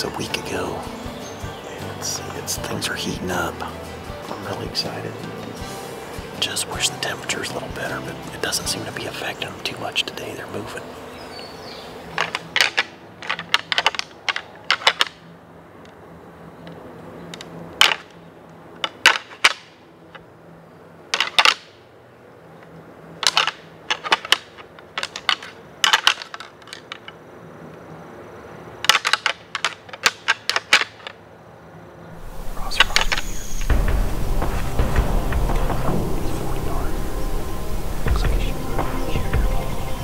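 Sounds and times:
squirrel rustling dry leaves: 0:32.2 - 0:40.0.

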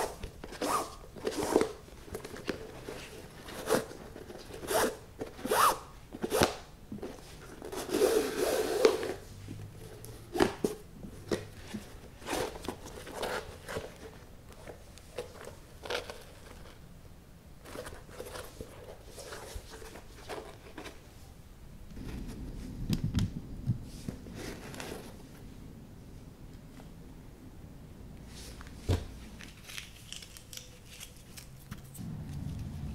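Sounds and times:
shoelaces zipping through eyelets: 0:04.6 - 0:05.8.

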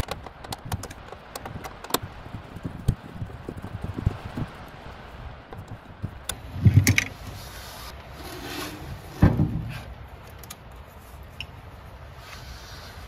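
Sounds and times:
screwdriver and hands clicking: 0:00.0 - 0:02.1.

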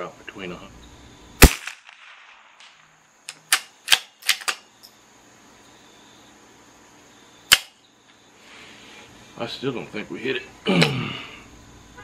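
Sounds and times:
rifle bolt metallic clicks: 0:03.3 - 0:04.6.

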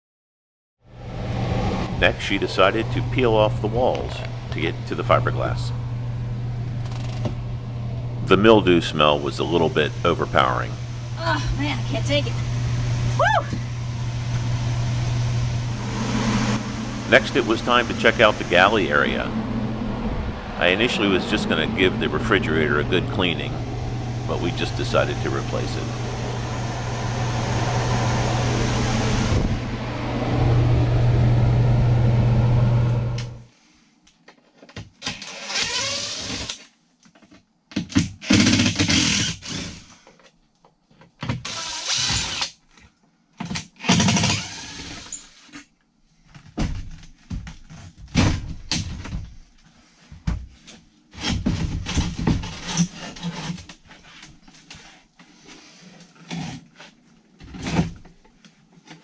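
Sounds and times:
steady hum: 0:00.9 - 0:33.5
cordless drill running: 0:38.2 - 0:39.9, 0:41.5 - 0:42.5, 0:43.9 - 0:45.2.

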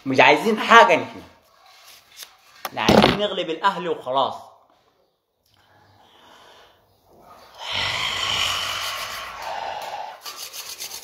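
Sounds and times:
faint breath: 0:05.5 - 0:10.4.

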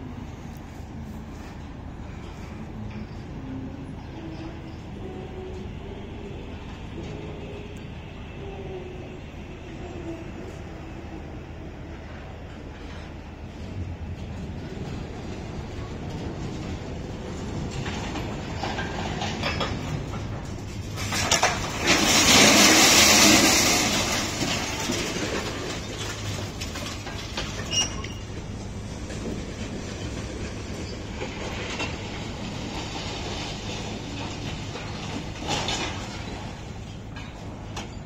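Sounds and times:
low machinery hum: 0:00.0 - 0:38.0
scrap metal grinding and clattering: 0:12.6 - 0:38.0.

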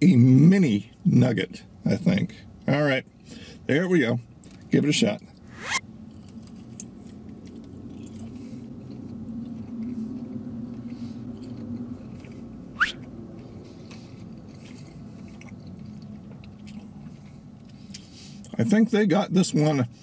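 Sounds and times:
man chewing food: 0:05.4 - 0:18.6
short rising squeak: 0:05.5 - 0:05.8.

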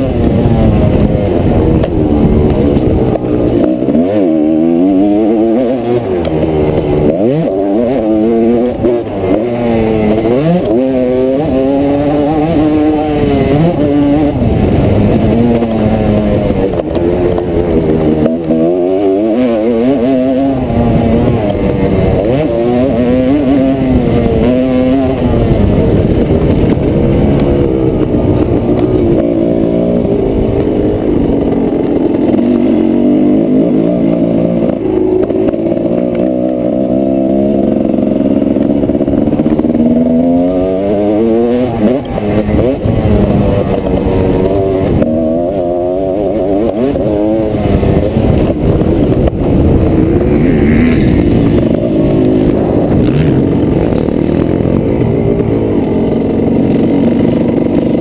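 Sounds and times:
two-stroke motorcycle engine revving: 0:00.0 - 0:58.0.

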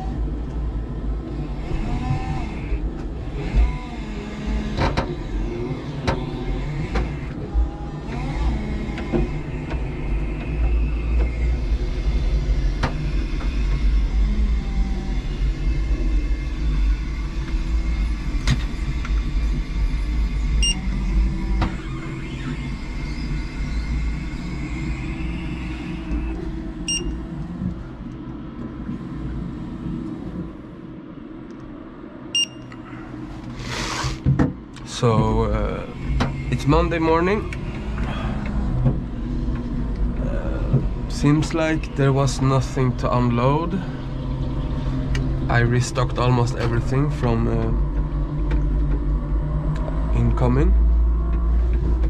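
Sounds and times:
electric forklift motor humming: 0:00.0 - 0:52.0
barcode scanner beeping: 0:20.6 - 0:20.8, 0:26.9 - 0:27.2, 0:32.4 - 0:32.7.

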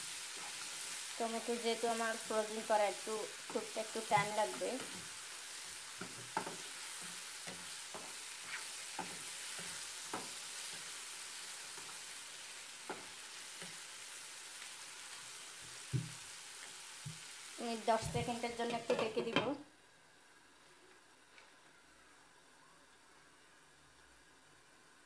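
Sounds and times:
food sizzling in oil: 0:00.0 - 0:19.6
spatula scraping and tapping pan: 0:03.4 - 0:05.2, 0:05.9 - 0:11.0, 0:12.8 - 0:13.8, 0:18.0 - 0:19.6
knock on pan: 0:15.9 - 0:16.2.

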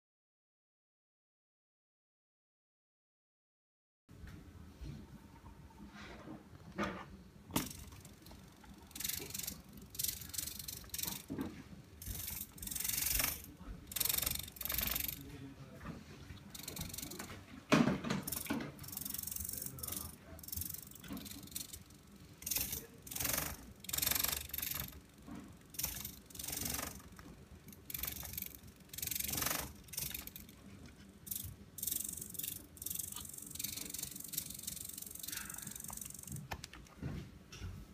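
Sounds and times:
servo motors whirring: 0:12.0 - 0:15.3, 0:18.3 - 0:30.6.

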